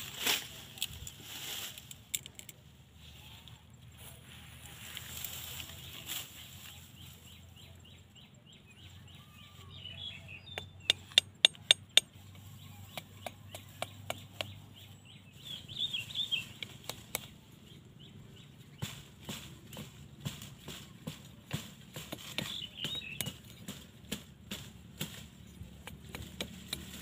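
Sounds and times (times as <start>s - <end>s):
faint birds chirping: 0.0s - 27.0s
machete striking bamboo: 10.5s - 12.2s, 12.8s - 14.6s, 18.8s - 27.0s.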